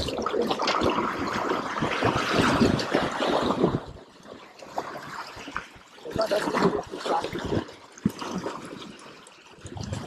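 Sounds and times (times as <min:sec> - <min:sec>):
wind buffeting microphone: 0:00.0 - 0:04.0
waves splashing against rocks: 0:00.0 - 0:10.0.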